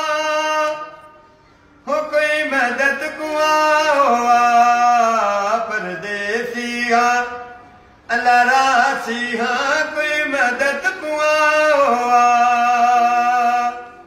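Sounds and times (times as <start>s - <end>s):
man singing unaccompanied lament: 0.0s - 1.1s, 1.8s - 14.0s.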